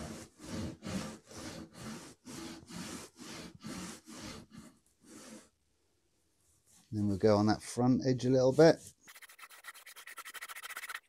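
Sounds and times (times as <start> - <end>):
hand saw cutting wood: 0.0 - 5.5.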